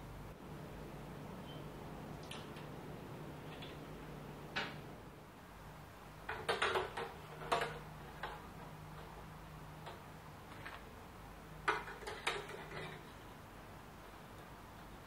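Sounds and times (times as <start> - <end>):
steady low hum: 0.0 - 6.3.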